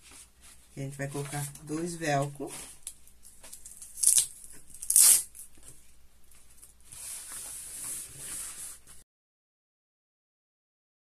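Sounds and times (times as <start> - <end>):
soft rustling: 0.0 - 4.7, 5.4 - 9.0
velcro strips ripping: 2.8 - 5.5.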